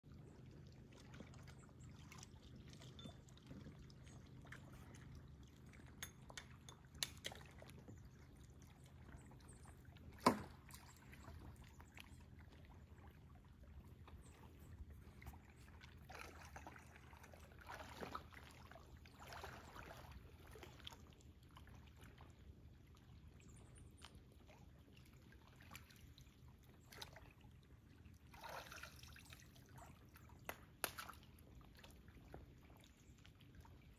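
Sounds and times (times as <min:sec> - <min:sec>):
water lapping and trickling: 0:00.0 - 0:33.9.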